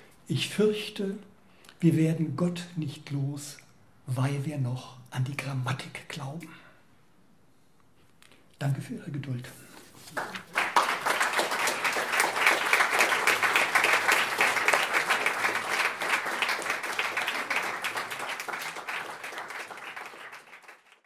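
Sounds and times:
audience applauding: 10.0 - 21.0.

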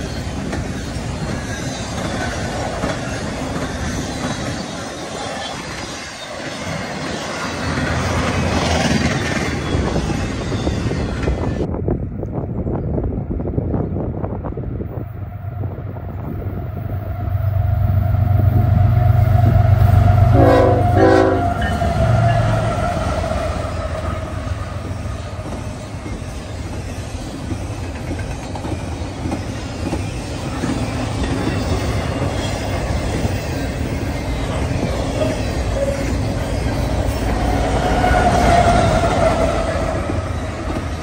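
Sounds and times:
train wheels clattering: 0.0 - 10.2, 23.8 - 41.0
diesel locomotive rumble: 7.6 - 41.0
train horn blasts: 18.2 - 24.6.

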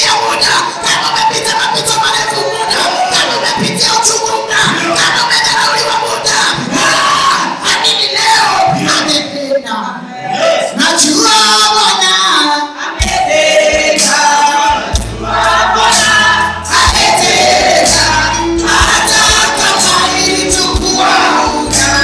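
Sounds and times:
voices singing worship song: 0.0 - 22.0
band bass line: 13.0 - 22.0
drum beat: 13.0 - 22.0.

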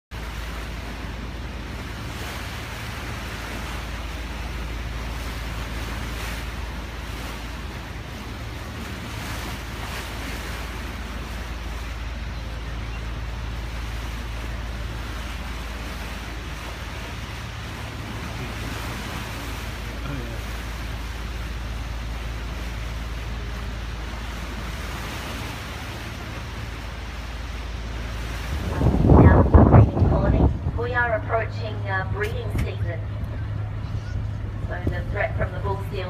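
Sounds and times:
low engine drone: 0.1 - 36.0
water rushing: 0.1 - 36.0
wind rushing: 27.6 - 31.1.

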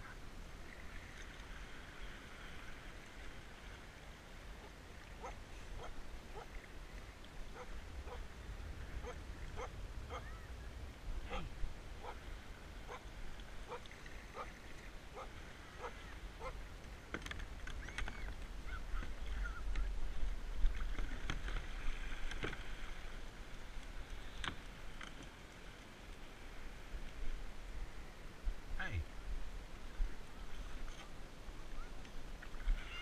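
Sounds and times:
wind rumble on microphone: 0.0 - 25.3, 26.2 - 33.0
short animal calls: 32.8 - 33.0.

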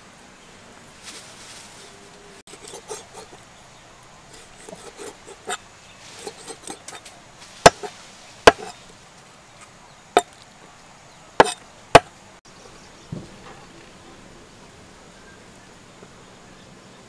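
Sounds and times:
knife chopping on wooden board: 4.4 - 5.6, 6.2 - 7.0, 7.6 - 8.8, 11.4 - 12.1.

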